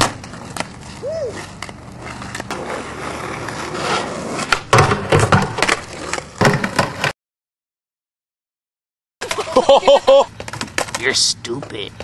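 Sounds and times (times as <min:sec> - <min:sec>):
skateboard grinding on wooden ledge: 0:00.0 - 0:07.1
skateboard wheels rolling on asphalt: 0:00.0 - 0:07.1, 0:09.2 - 0:12.0.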